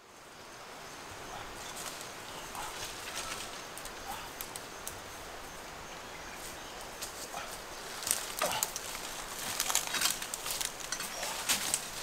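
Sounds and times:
footsteps crunching dry leaves: 0:07.8 - 0:12.0.

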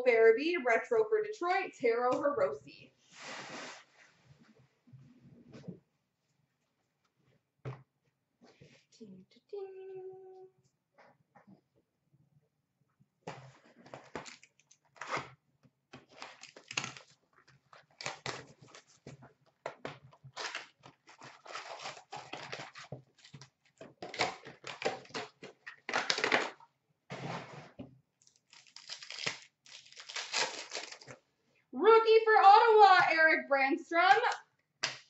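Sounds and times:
foil wrappers tearing and crinkling: 0:16.0 - 0:17.2, 0:17.8 - 0:19.1, 0:20.3 - 0:26.6, 0:28.2 - 0:31.2.

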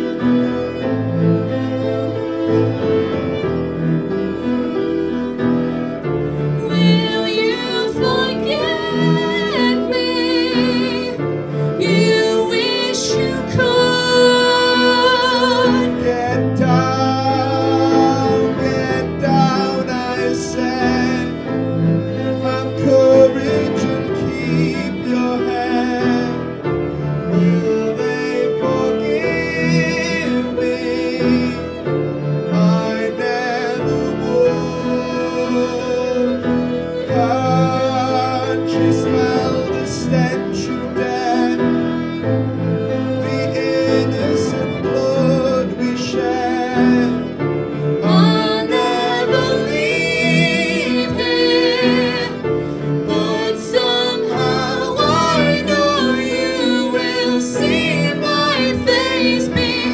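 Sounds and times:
cello with vibrato: 0:00.0 - 0:59.9
piano: 0:00.0 - 0:59.9
woman singing: 0:06.7 - 0:11.2, 0:11.8 - 0:16.0.

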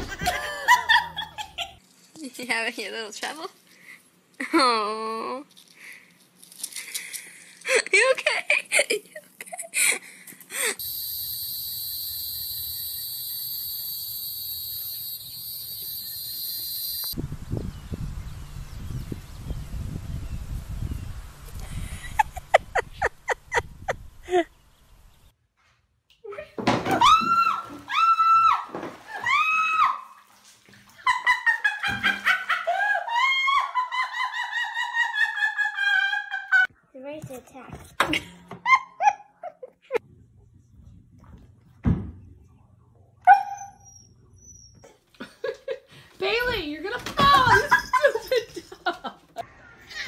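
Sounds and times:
insects droning: 0:10.8 - 0:17.2.

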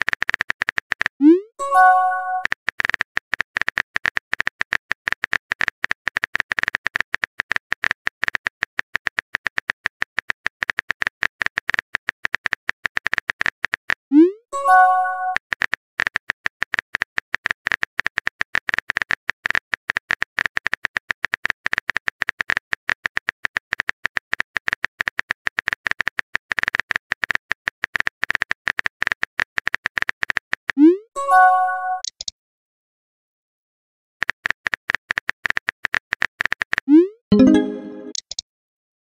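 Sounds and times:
phone keyboard typing clicks: 0:32.0 - 0:32.3
short electronic chime: 0:37.3 - 0:38.2.

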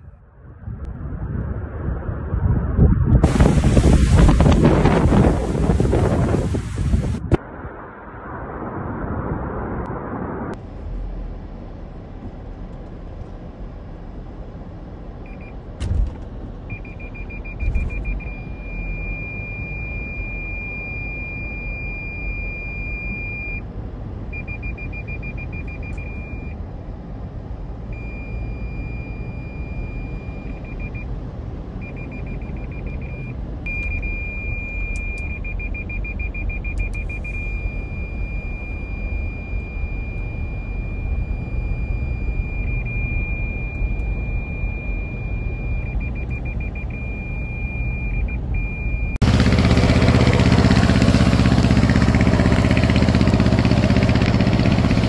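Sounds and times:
loud rushing noise: 0:01.9 - 0:10.6
car driving through flood water: 0:03.2 - 0:55.0
high electronic beep: 0:16.7 - 0:23.6, 0:24.4 - 0:26.6, 0:31.8 - 0:54.9.

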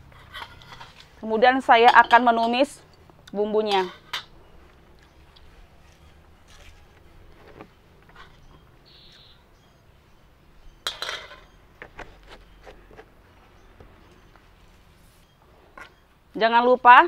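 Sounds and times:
cookware clattering: 0:10.8 - 0:11.6
pots and pans clinking: 0:10.8 - 0:11.6.

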